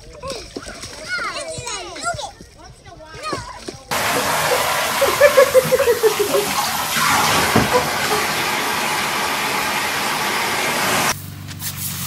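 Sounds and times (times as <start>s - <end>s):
tap water running into bathtub: 3.9s - 11.2s.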